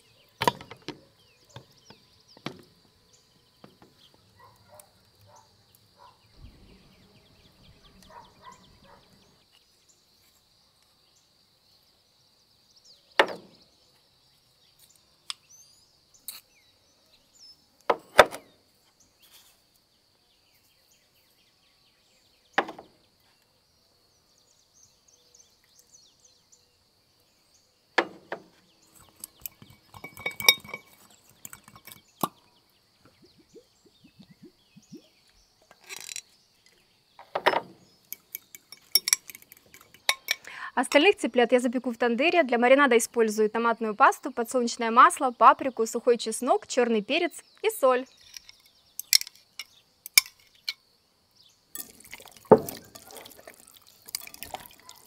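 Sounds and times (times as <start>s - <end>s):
kitchen knocks and clinks: 29.3s - 32.4s, 37.4s - 40.5s.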